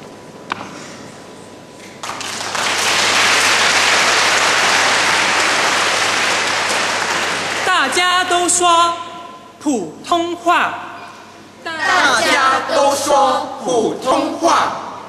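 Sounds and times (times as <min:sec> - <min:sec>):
audience applauding: 0:02.0 - 0:08.0.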